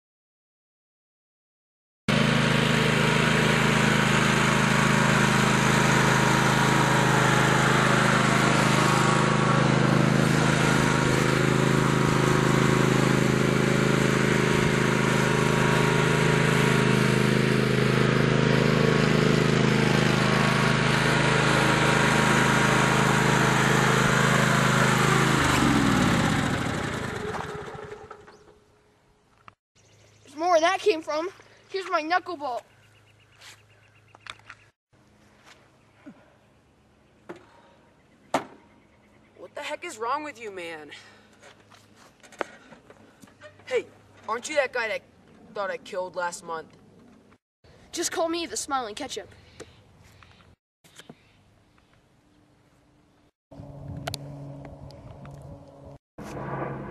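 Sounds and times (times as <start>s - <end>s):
riding lawn mower engine: 2.1s - 28.8s, 53.5s - 56.9s.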